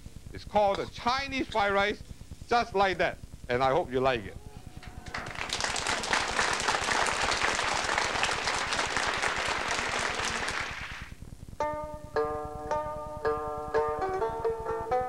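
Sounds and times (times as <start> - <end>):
audience applause: 4.8 - 11.2
plucked-sounding tune: 11.6 - 15.0.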